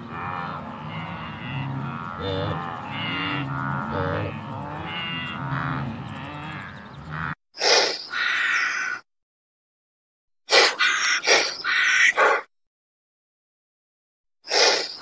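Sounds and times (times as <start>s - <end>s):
wildebeest grunting and lowing: 0.0s - 7.4s
short breathy bursts: 14.5s - 15.0s.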